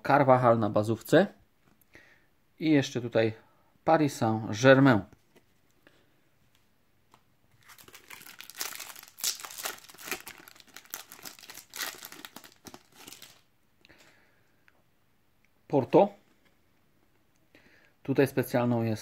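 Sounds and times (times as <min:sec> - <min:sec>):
foil packet crinkling and tearing: 0:07.6 - 0:13.5.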